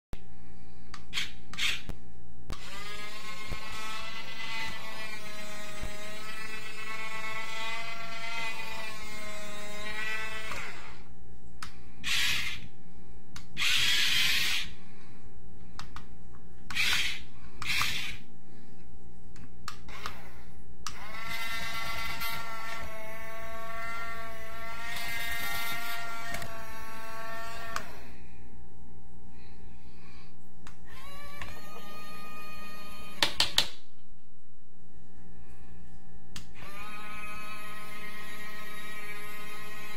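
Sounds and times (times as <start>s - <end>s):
small electric motors whining: 1.0s - 1.9s, 2.5s - 11.1s, 11.9s - 12.7s, 13.5s - 14.8s, 16.7s - 18.3s, 19.8s - 28.2s, 30.6s - 33.4s, 36.4s - 39.9s.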